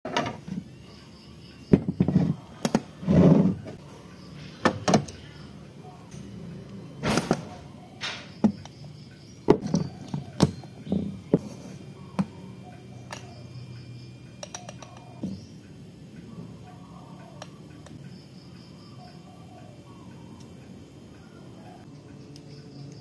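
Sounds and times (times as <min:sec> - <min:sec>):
coffee tools clicking and knocking: 0:14.4 - 0:15.2.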